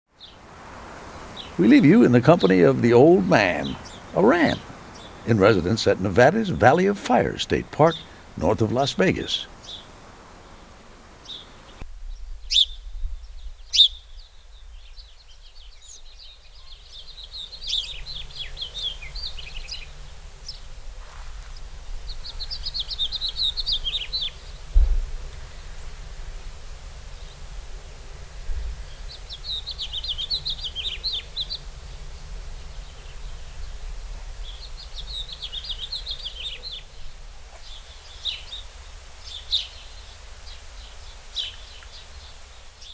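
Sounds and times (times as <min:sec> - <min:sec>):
songbird twittering: 0:01.0 - 0:20.7, 0:21.4 - 0:24.8, 0:28.8 - 0:42.9
sharp bird chirps: 0:12.5 - 0:12.8, 0:13.7 - 0:14.2
low thump: 0:24.7 - 0:25.2.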